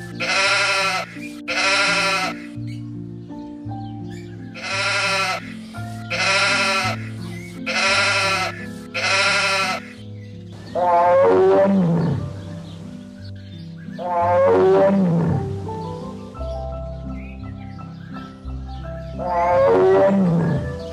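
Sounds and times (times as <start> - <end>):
background music with low notes: 0.0 - 20.9
animal bleating: 0.2 - 2.6, 4.6 - 10.0.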